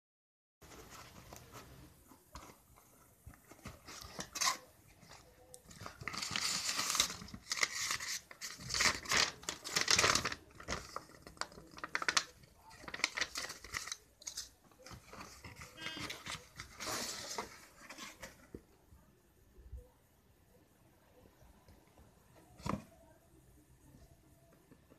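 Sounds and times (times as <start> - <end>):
packaging being torn and crumpled: 5.7 - 14.5.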